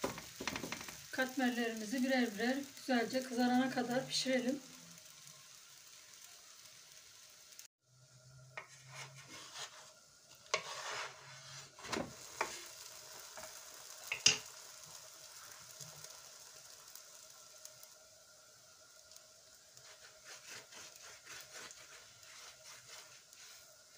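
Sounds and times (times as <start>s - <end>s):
wooden spatula scraping a pan: 0.0s - 2.4s, 8.5s - 14.5s, 19.7s - 23.9s
flatbread sizzling in oil: 0.0s - 23.9s.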